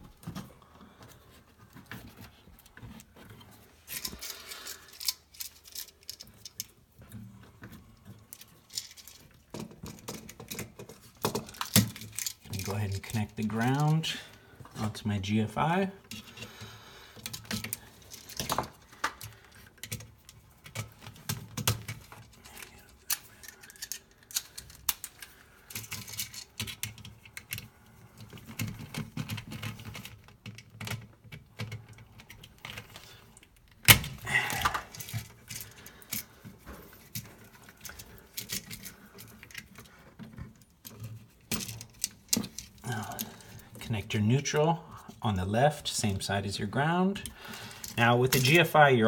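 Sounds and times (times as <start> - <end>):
wires being handled: 0.0 - 49.0
screwdriver clicks and metallic rattles: 2.2 - 14.1, 16.0 - 16.6, 17.2 - 43.8.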